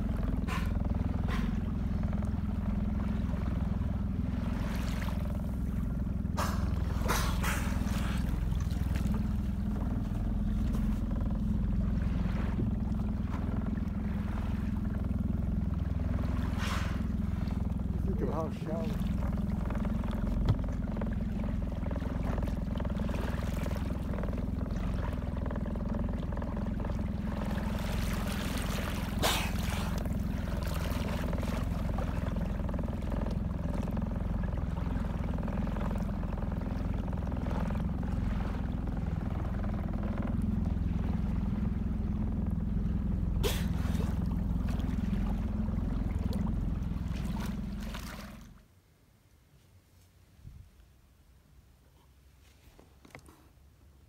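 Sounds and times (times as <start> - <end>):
water washing along hull: 0.0 - 48.7
small boat motor running: 0.0 - 48.9
sharp knocks or splashes: 0.2 - 1.9, 6.3 - 11.1, 18.4 - 25.4, 26.8 - 33.8, 43.4 - 45.5.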